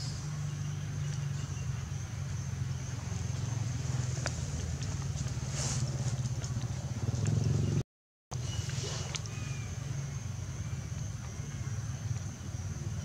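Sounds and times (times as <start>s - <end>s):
engine droning: 0.0s - 7.8s.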